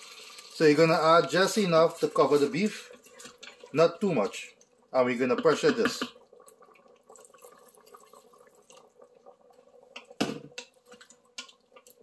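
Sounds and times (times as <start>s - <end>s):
water pouring and dripping into pot: 0.0s - 12.0s
wooden spoon knocking against pot: 5.3s - 6.2s.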